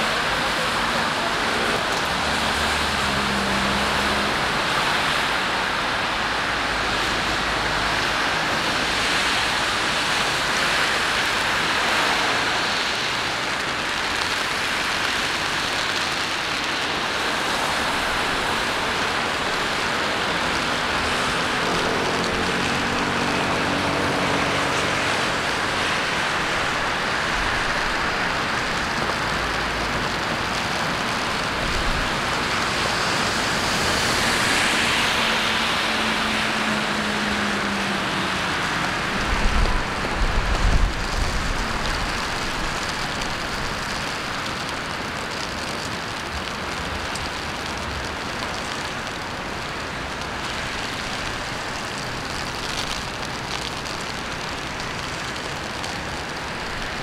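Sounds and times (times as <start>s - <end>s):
city traffic on wet roads: 0.0s - 57.0s
steady rain hiss: 0.0s - 57.0s
vehicle passing: 21.0s - 26.5s.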